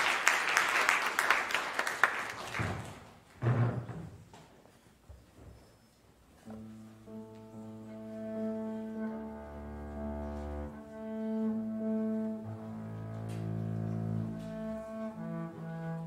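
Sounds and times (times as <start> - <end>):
piano accompaniment: 6.4 - 16.0
bowed double bass: 6.5 - 16.0.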